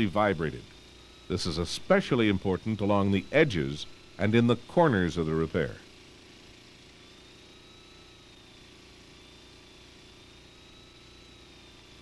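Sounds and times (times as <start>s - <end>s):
high whine: 0.0s - 5.8s
small engine droning: 0.0s - 12.0s.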